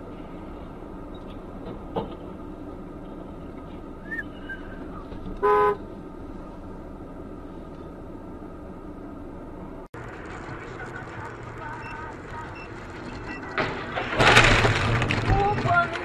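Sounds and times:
car engine and road noise: 0.0s - 16.0s
car horn toot: 5.4s - 5.8s.

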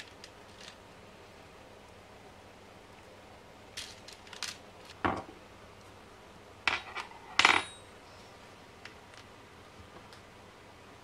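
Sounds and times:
metal hardware clinking: 6.7s - 7.9s.

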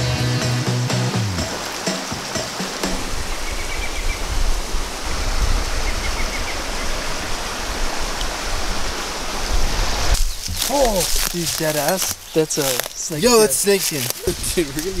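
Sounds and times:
stream water rushing: 1.1s - 15.0s
net splashing and dripping: 1.3s - 3.9s, 10.0s - 14.8s.

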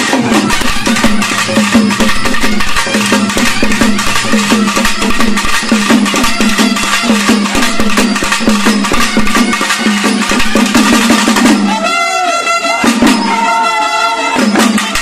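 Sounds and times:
drums beaten with sticks: 0.0s - 15.0s
brass horn long notes: 11.7s - 14.6s.

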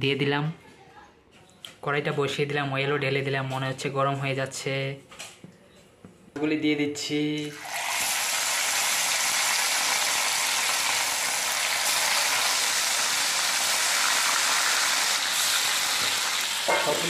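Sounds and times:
fish sizzling in hot oil: 7.6s - 17.0s.

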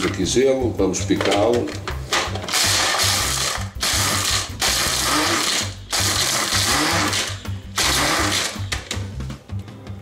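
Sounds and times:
electric chopper crushing ice: 2.5s - 8.6s.

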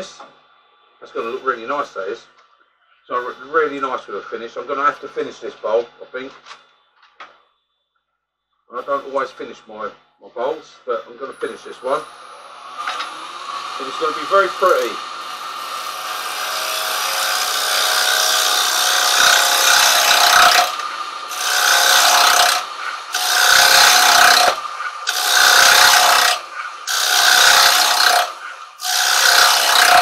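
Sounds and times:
chisel cutting wood on a lathe: 11.5s - 30.0s.

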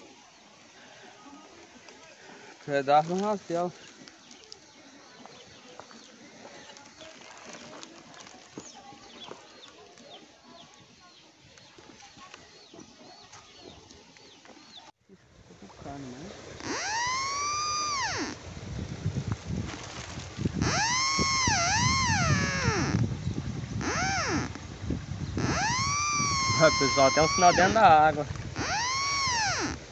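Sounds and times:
metal detector tone: 16.6s - 18.4s, 20.6s - 23.0s, 23.8s - 24.5s, 25.4s - 27.8s, 28.6s - 29.8s
birds chirping faintly: 20.6s - 29.9s.

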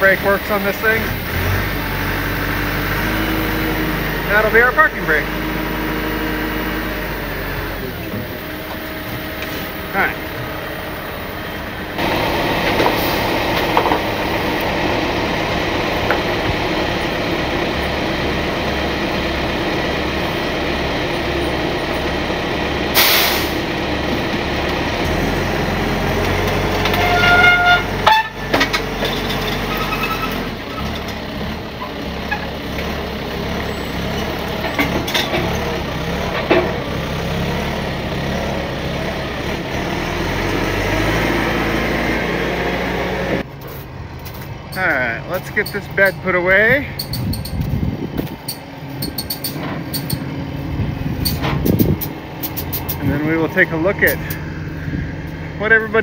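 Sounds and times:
diesel engines running: 0.0s - 56.0s
air hiss: 23.0s - 23.6s
high squeal: 26.8s - 28.4s, 29.6s - 30.9s.

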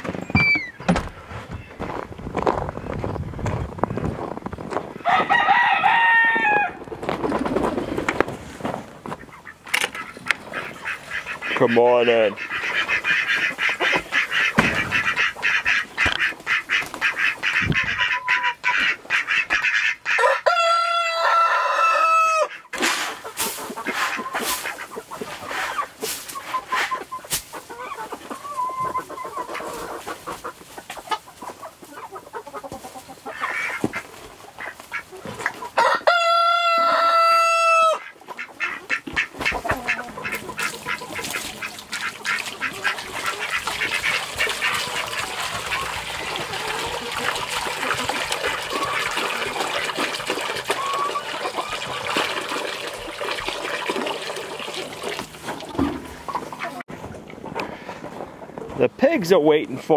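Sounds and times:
hens clucking: 3.8s - 59.9s
rooster crowing: 5.0s - 6.8s, 20.2s - 22.5s, 35.8s - 38.0s
ducks quacking: 9.0s - 21.5s, 22.3s - 58.5s.

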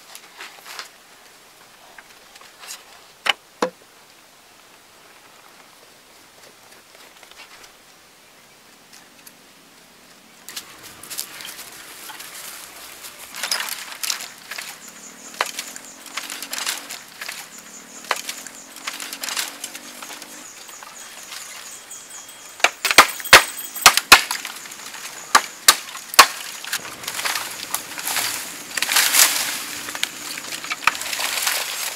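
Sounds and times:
bamboo canes cracking: 10.5s - 20.5s, 22.6s - 31.9s
footsteps on dry leaves: 10.5s - 31.9s.

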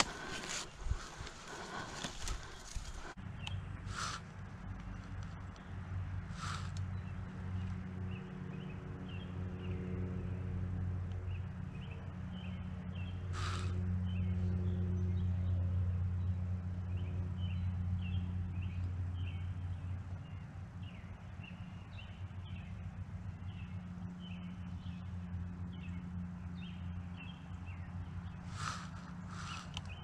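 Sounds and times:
scratchy noise: 0.0s - 3.2s, 3.9s - 4.2s, 28.5s - 29.8s
low hum: 0.0s - 30.0s
small bird chirping: 6.3s - 7.8s, 23.4s - 30.0s.

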